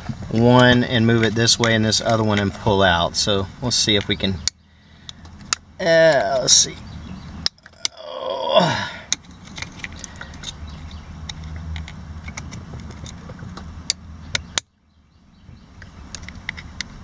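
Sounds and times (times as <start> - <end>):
person grunting: 7.8 - 9.1.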